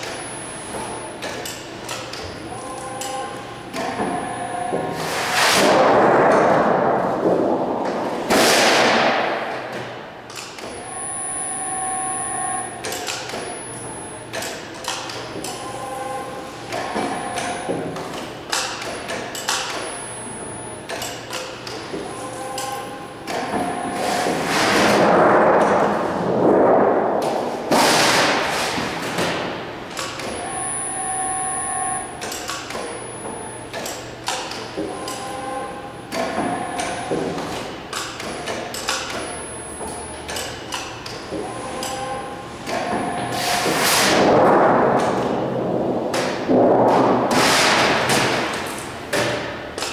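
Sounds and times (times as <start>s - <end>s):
steady machine whine: 10.6s - 14.3s, 30.3s - 32.2s
knocks of sheet metal: 44.0s - 48.5s
sheet metal rumbling and rattling: 44.2s - 48.1s.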